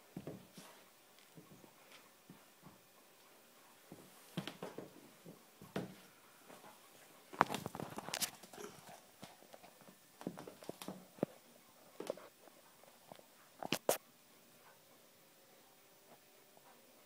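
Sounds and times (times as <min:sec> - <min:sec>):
sneakers on hardwood floor: 0:00.2 - 0:02.8, 0:03.9 - 0:06.7.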